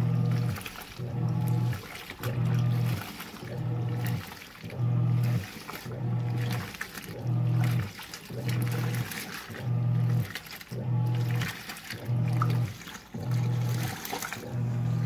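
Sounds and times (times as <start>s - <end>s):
washing machine motor humming: 0.0s - 15.0s
water sloshing in tub: 0.0s - 15.0s.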